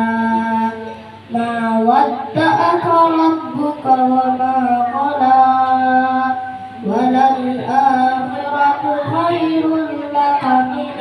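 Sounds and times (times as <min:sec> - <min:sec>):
boy chanting melodic recitation: 0:00.0 - 0:11.0.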